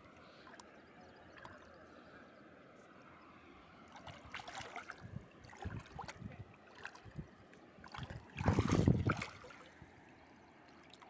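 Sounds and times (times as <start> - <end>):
water splashing: 3.9 - 9.8.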